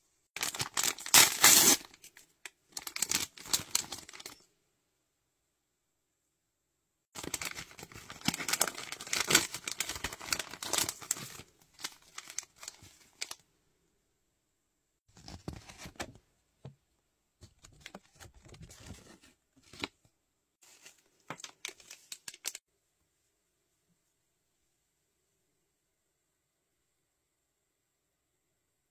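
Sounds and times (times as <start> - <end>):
plastic wrapper tearing and crinkling: 0.4 - 4.4, 7.2 - 13.4.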